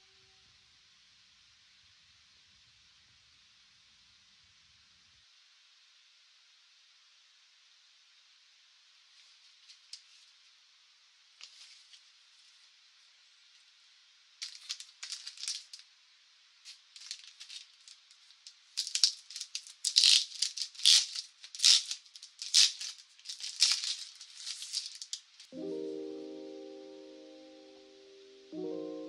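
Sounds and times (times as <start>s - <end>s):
packaging crinkling and rustling: 14.4s - 15.8s, 16.7s - 25.6s
piano music: 25.5s - 29.0s.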